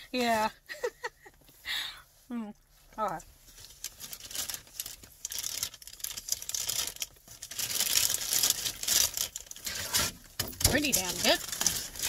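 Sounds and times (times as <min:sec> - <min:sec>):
paper packaging rustling: 0:03.5 - 0:12.0.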